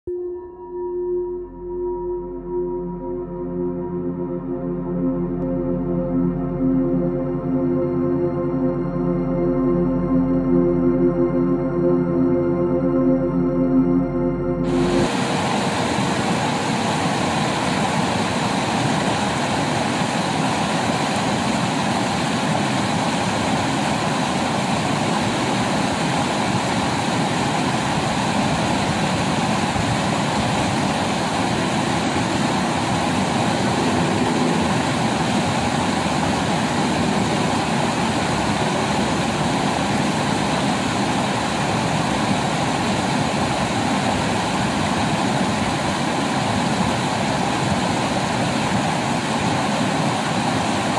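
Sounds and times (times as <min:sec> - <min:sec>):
water rushing over rocks: 0:14.7 - 0:50.9.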